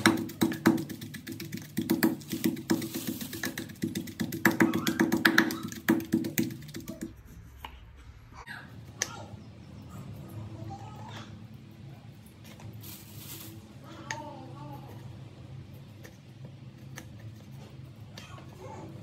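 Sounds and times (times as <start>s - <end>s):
wooden pestle pounding in mortar: 0.0s - 7.2s.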